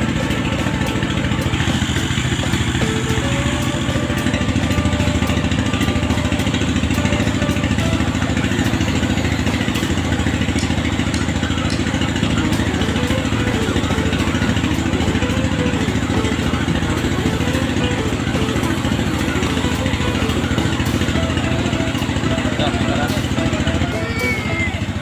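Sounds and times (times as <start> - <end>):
truck engine idling: 0.0 - 25.0.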